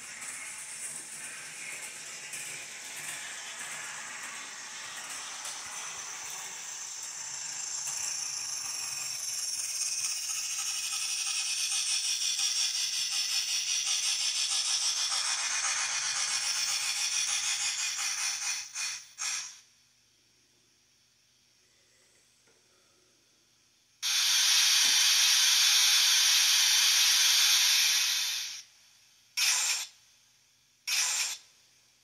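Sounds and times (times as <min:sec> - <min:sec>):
bursts of steam hiss: 0:00.0 - 0:19.6, 0:24.0 - 0:28.7, 0:29.4 - 0:30.0, 0:30.9 - 0:31.4
steam locomotive exhaust chuffing: 0:00.0 - 0:19.6, 0:24.0 - 0:28.7.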